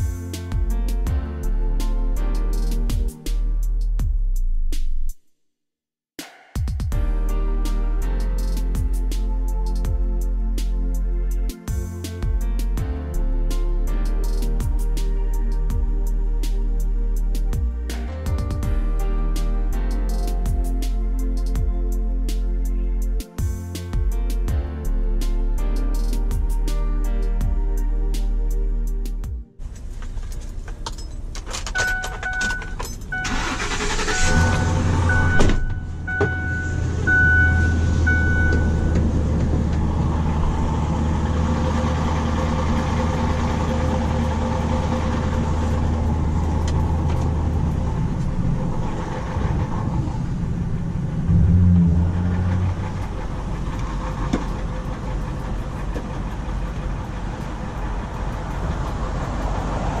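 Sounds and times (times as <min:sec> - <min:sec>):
truck engine cranking and idling: 0:07.2 - 1:00.0
dashboard warning chime beeping: 0:31.8 - 0:39.0.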